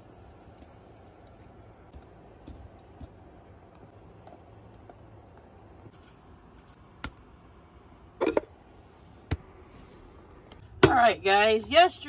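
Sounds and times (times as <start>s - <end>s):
hiss of sprinkling seasoning: 5.9s - 6.8s
rattle of seasoning shaker: 5.9s - 6.8s.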